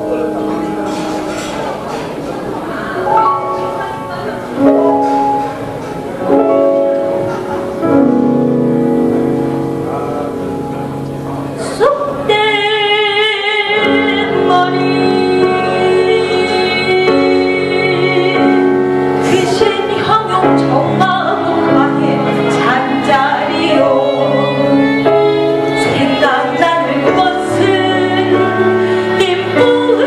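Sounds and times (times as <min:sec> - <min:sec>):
instrumental melodic notes: 0:00.0 - 0:30.0
woman singing with vibrato: 0:11.6 - 0:30.0.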